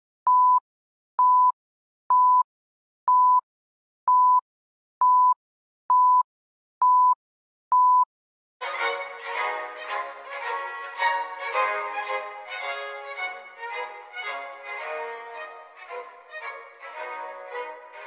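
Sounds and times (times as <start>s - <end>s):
countdown beeps with clicks: 5.0s - 6.2s, 6.8s - 8.1s
violin music: 8.6s - 18.0s.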